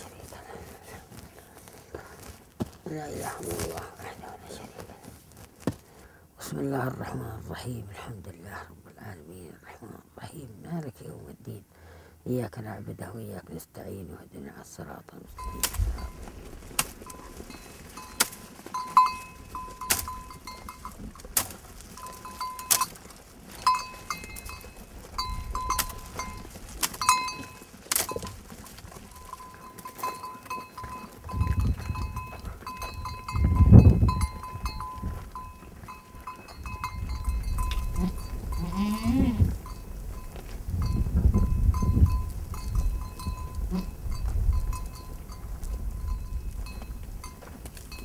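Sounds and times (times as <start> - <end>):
goat bells clinking: 15.4 - 48.0
goat bleating: 37.7 - 39.6, 43.5 - 44.0.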